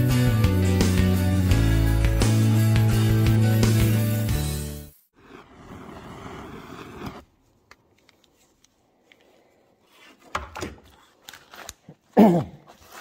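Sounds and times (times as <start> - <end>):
blowtorch flame rushing: 5.2 - 7.2.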